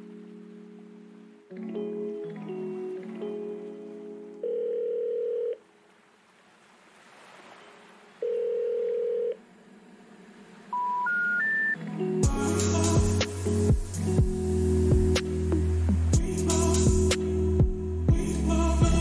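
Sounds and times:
background music: 0:00.0 - 0:05.4, 0:10.8 - 0:19.0
electronic beeps: 0:10.7 - 0:11.8
hiss: 0:12.4 - 0:14.1.

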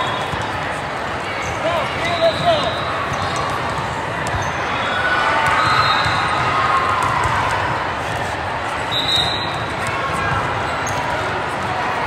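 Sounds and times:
crowd chatter in echoing hall: 0:00.0 - 0:12.0
volleyballs bouncing and hit: 0:00.1 - 0:04.7, 0:05.3 - 0:08.8.

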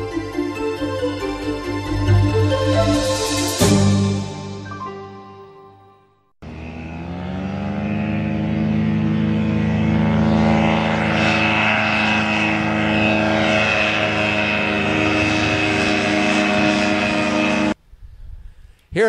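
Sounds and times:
light aircraft engine droning: 0:06.4 - 0:17.8.

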